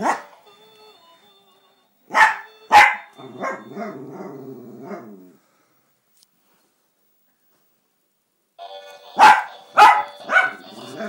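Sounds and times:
dog barking: 0.0 - 0.3, 2.1 - 4.0, 9.2 - 10.7.

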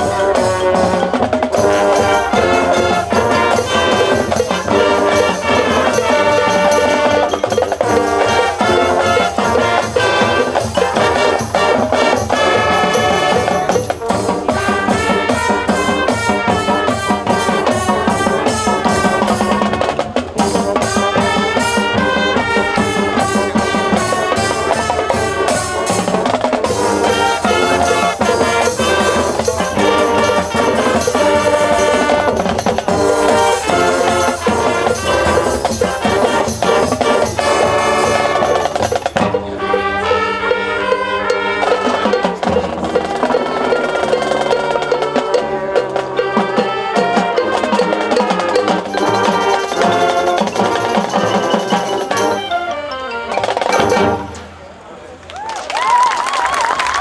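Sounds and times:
drum hits: 0.0 - 39.8
horns holding chords: 0.0 - 55.2
marching band playing: 0.0 - 57.0.

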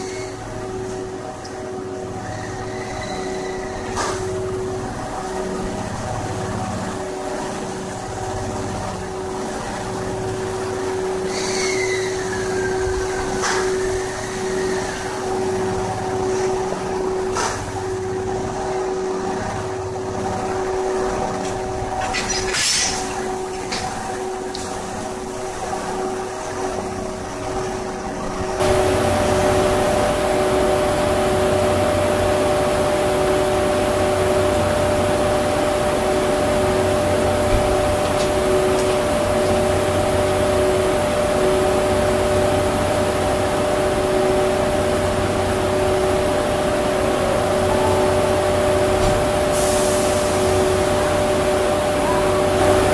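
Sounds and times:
electric locomotive humming: 0.0 - 52.9
sharp hiss of air: 49.5 - 50.8.

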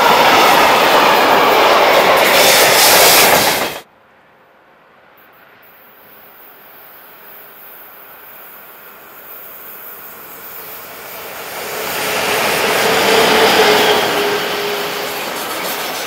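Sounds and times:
freight train passing: 0.0 - 16.0
locomotive humming tone: 6.6 - 16.0.

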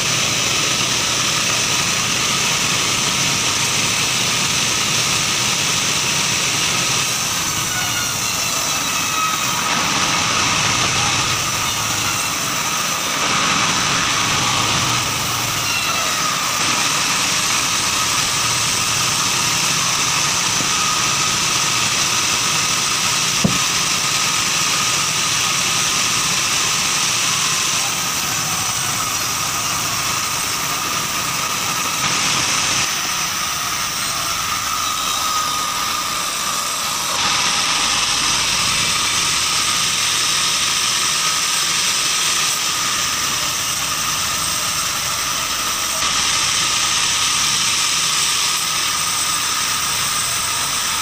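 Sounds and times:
bandsaw sawing log: 0.0 - 51.0
sharp knock: 23.4 - 23.8.

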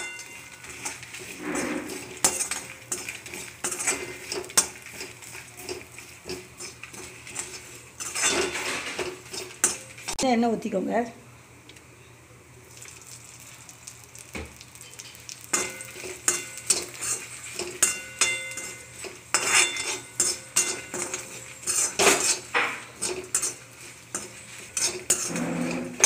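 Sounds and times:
ladle scraping metal pan: 0.6 - 9.8, 16.3 - 26.0.

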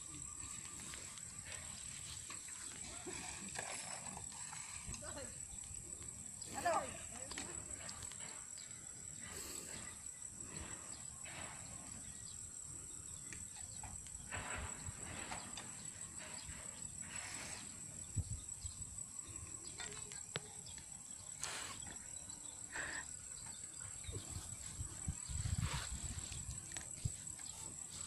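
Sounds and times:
insects droning: 0.0 - 28.0
rustling hisses: 6.2 - 12.2, 14.3 - 18.2, 21.2 - 28.0.

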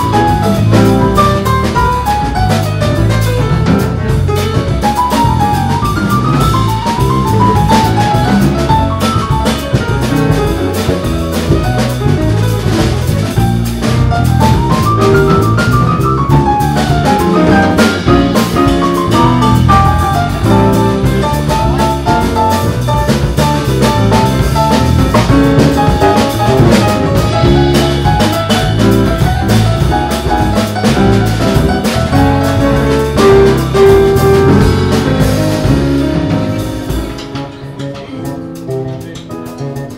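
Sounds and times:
walking bass line: 0.0 - 39.4
jazz piano runs: 0.0 - 39.9.

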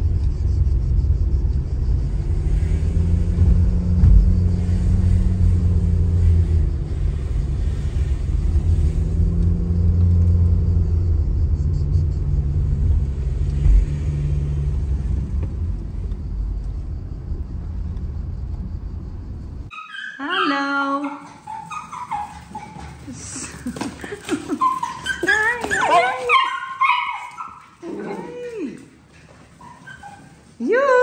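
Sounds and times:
car engine and road rumble: 0.0 - 19.7.

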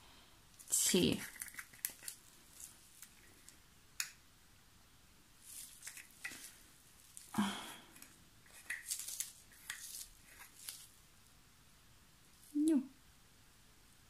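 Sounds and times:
stirring clicks and scrapes: 0.6 - 3.6, 5.5 - 7.3, 7.9 - 10.8.

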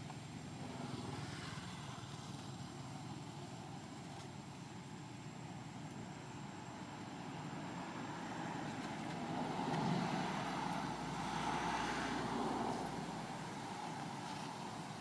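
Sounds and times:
passing vehicle rumble: 6.8 - 15.0.

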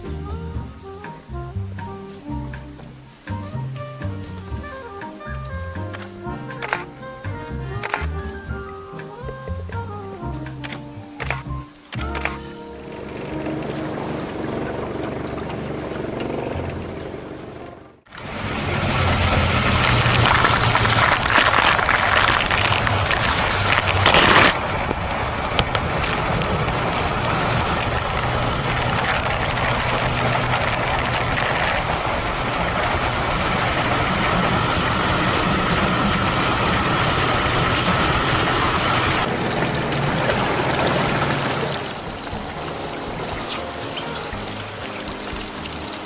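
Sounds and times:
motorboat engine running: 4.3 - 46.0
water spray from hull: 12.0 - 46.0.

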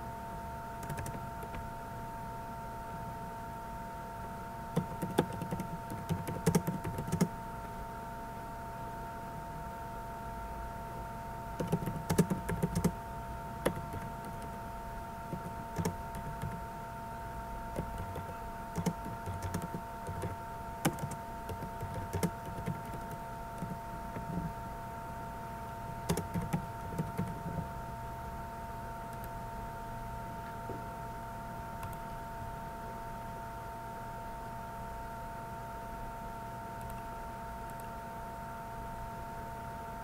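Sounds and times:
steady high hum: 0.0 - 40.0
typing on computer keyboard: 0.8 - 1.6, 4.8 - 7.3, 11.6 - 13.0, 13.6 - 14.6, 15.3 - 16.6, 17.7 - 24.5, 26.1 - 27.7, 29.1 - 29.4.

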